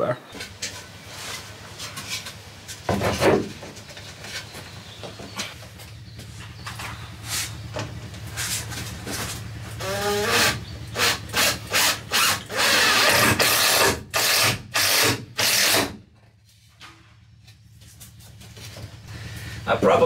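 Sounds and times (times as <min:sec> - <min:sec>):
cordless drill whining: 0:09.8 - 0:15.8.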